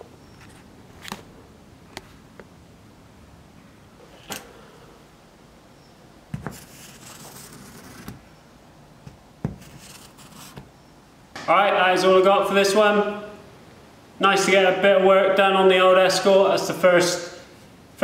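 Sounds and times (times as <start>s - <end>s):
marker scratching on glass: 6.4s - 8.2s, 9.5s - 10.7s.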